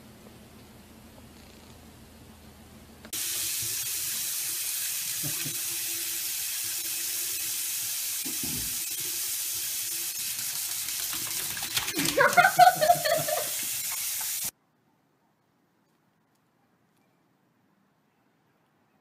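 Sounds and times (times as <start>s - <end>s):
faucet water running into sink: 3.2s - 14.5s.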